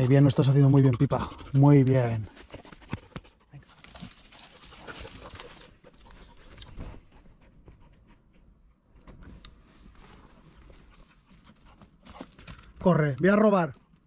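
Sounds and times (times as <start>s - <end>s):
dog panting: 0.0s - 8.9s, 10.2s - 12.7s.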